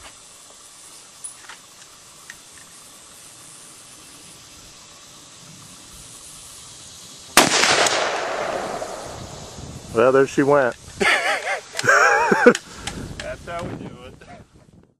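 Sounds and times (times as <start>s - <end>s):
outdoor hiss: 0.0s - 14.9s
loud rifle shot: 7.4s - 9.5s
faint clicks: 10.6s - 13.7s.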